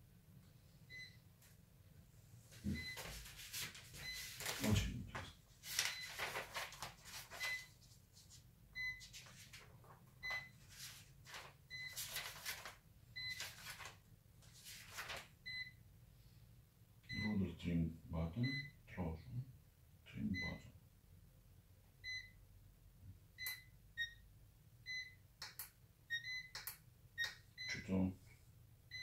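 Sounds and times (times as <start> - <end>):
paper pages rustling: 3.0 - 8.4, 9.0 - 10.0, 10.6 - 15.3.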